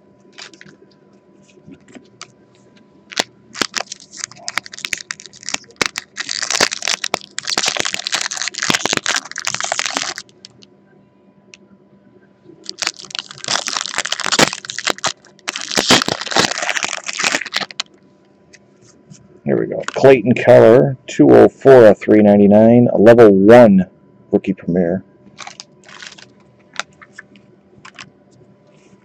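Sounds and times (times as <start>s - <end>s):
plastic wrapper crinkling: 0.3s - 0.8s, 3.1s - 10.6s, 12.6s - 18.0s, 25.4s - 28.1s.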